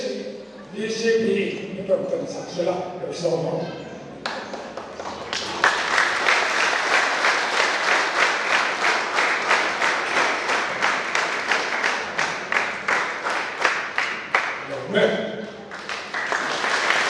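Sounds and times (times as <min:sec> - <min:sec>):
audience applauding: 0:04.2 - 0:14.8, 0:15.7 - 0:17.0.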